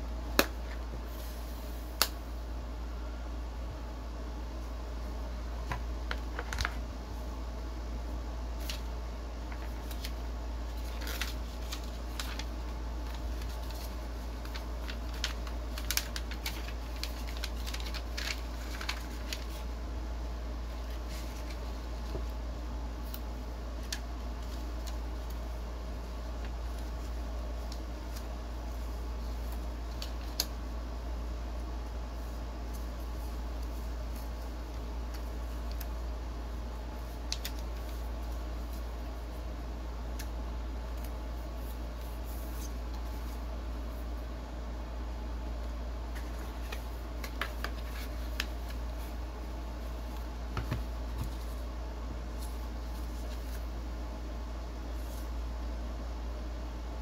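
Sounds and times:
steady low hum: 0.0 - 57.0
cardboard packaging handled: 9.5 - 19.6
cardboard packaging clicks and taps: 47.2 - 48.5, 50.5 - 51.4.

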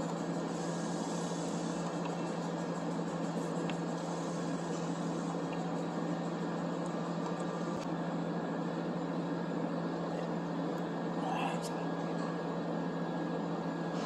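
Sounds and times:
machinery hum with low drone: 0.0 - 14.0.

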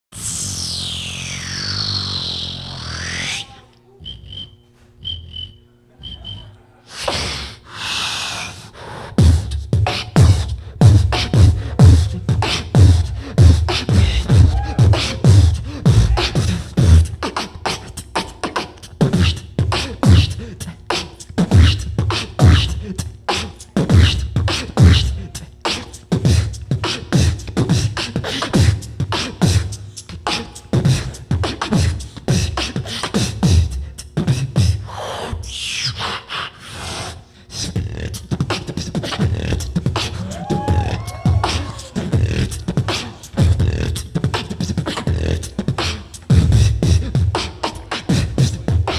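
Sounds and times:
low held tone: 0.2 - 6.8
beatboxing into a microphone: 0.2 - 48.9.

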